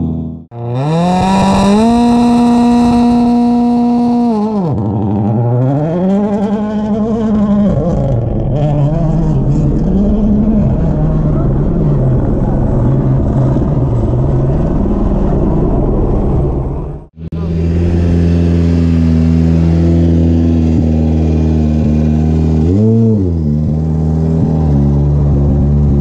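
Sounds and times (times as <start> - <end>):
rally car engine running loud: 0.0 - 26.0
car engine idling: 6.6 - 26.0.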